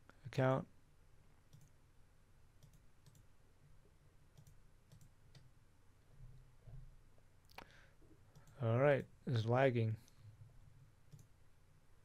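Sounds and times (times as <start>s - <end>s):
computer mouse clicks: 1.5s - 1.8s, 2.6s - 3.3s, 4.3s - 5.5s, 8.3s - 9.1s, 11.1s - 11.3s.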